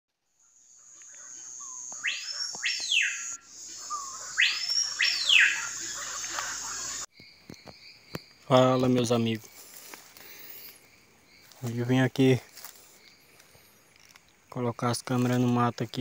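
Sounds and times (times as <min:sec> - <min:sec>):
high-pitched insect drone: 0:00.5 - 0:07.1
bird whistles sweeping up and down: 0:01.6 - 0:07.1.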